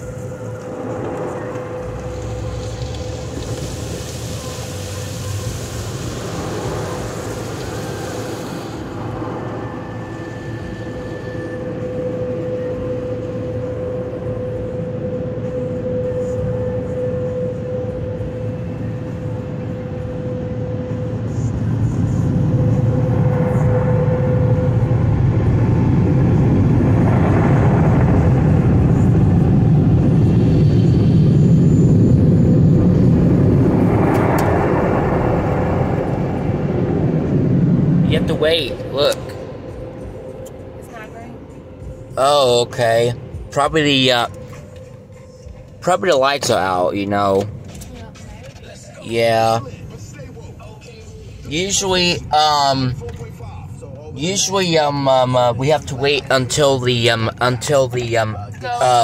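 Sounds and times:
air-dryer blowers roaring: 0.0s - 19.9s
car wash machinery hum: 0.0s - 59.0s
car wash hiss: 2.0s - 9.4s.

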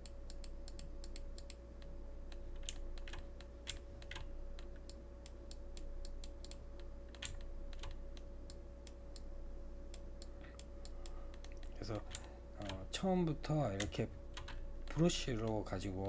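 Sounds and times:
computer mouse clicking: 0.0s - 9.3s, 9.9s - 12.8s
faint electrical hum: 0.0s - 16.0s.

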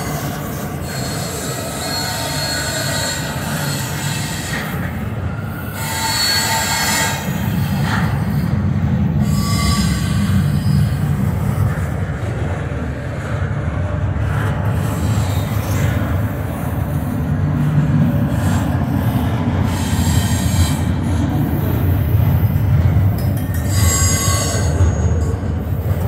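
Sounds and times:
high wheel squeals: 0.0s - 11.1s, 23.5s - 25.0s
freight train wheels rumbling: 0.0s - 26.0s.

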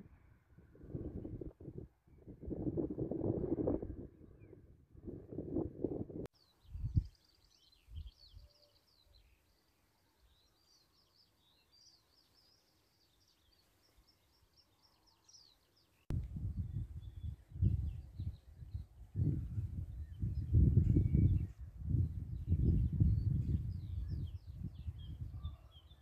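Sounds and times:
wind buffeting microphone: 0.0s - 7.2s, 16.1s - 26.0s
songbirds chirping and trilling: 6.3s - 26.0s.

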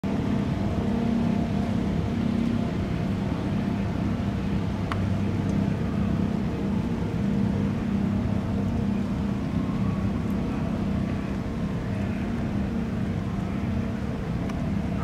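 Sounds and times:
ship engines humming: 0.0s - 15.0s.

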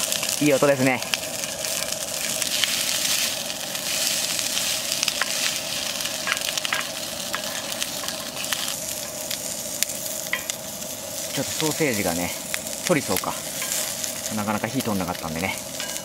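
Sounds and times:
rice sizzling in a pan: 0.0s - 16.0s
wooden spatula scraping a pan: 2.6s - 9.2s.

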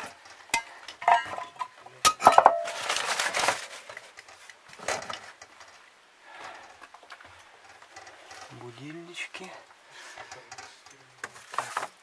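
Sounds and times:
glass and china clinking: 0.6s - 2.8s
paper wrapping rustling: 2.3s - 5.3s, 11.3s - 12.0s.

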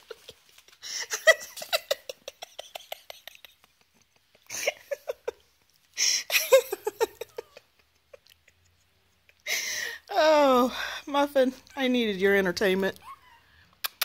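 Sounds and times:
rustling: 0.0s - 6.0s.

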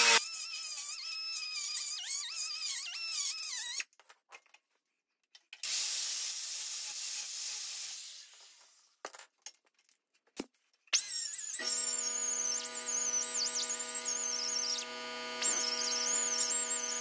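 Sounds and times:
air die grinder whine: 0.0s - 0.2s, 11.6s - 17.0s
angle grinder grinding metal: 0.0s - 2.8s, 11.0s - 17.0s.

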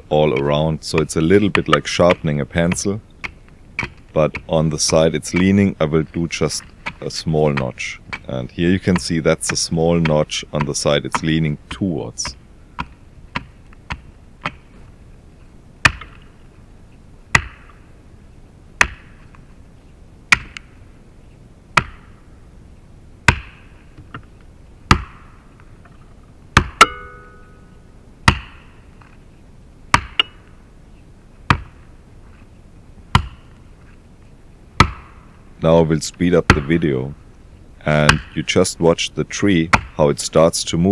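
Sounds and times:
axe chopping into wood: 0.4s - 5.6s, 6.4s - 14.7s, 15.8s - 16.3s, 17.3s - 17.8s, 18.8s - 19.3s, 20.3s - 20.8s, 21.8s - 22.2s, 23.3s - 24.2s, 24.9s - 25.4s, 26.6s - 27.4s, 28.2s - 28.7s, 29.9s - 30.4s, 31.5s - 31.8s, 33.1s - 33.5s, 34.8s - 35.2s, 36.5s - 36.8s, 38.0s - 38.4s, 39.7s - 40.0s.

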